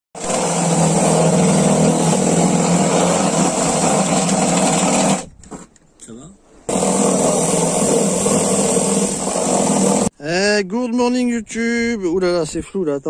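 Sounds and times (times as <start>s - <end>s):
cordless drill boring: 0.2s - 5.3s, 6.7s - 10.1s.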